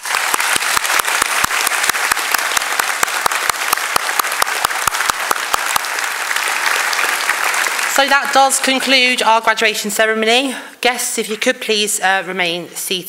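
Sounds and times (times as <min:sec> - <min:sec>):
nearby hands clapping steadily: 0:00.0 - 0:08.0
audience applauding: 0:00.0 - 0:08.8.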